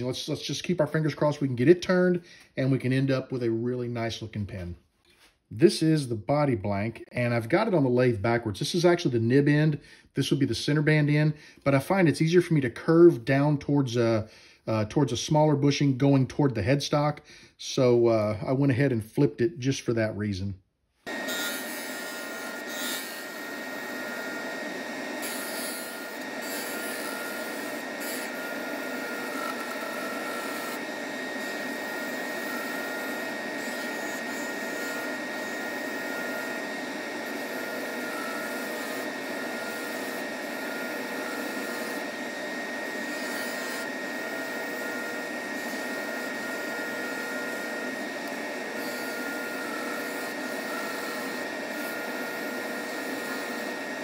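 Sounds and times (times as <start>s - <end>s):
lathe motor whine: 21.0s - 54.0s
gouge scraping wood: 23.9s - 42.0s.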